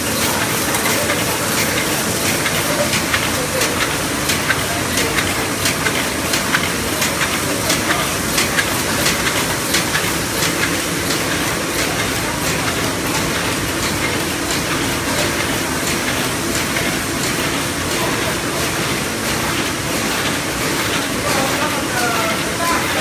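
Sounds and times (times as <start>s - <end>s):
die-cutting machine running: 0.0s - 23.0s.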